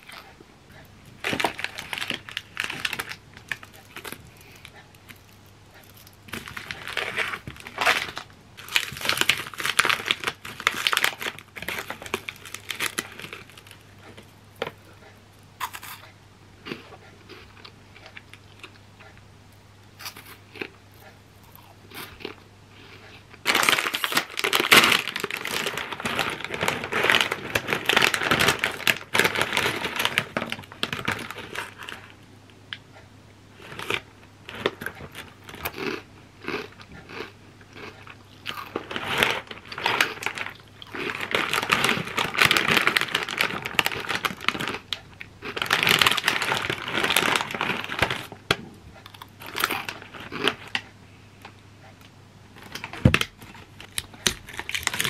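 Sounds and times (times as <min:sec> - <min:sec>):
plastic snack bag crinkling: 0:01.1 - 0:14.8, 0:23.4 - 0:32.2, 0:33.6 - 0:48.4, 0:49.0 - 0:50.9, 0:52.6 - 0:55.0.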